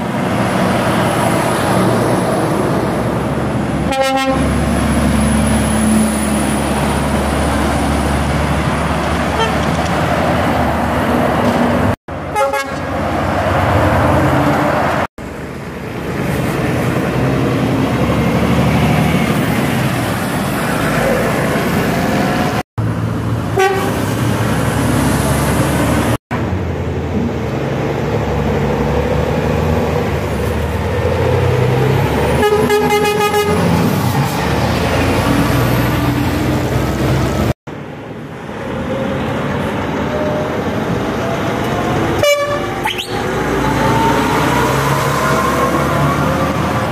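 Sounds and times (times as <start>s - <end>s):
lorries passing: 0.0s - 46.9s
lorry horn: 3.9s - 4.4s, 23.6s - 24.0s, 42.2s - 42.8s.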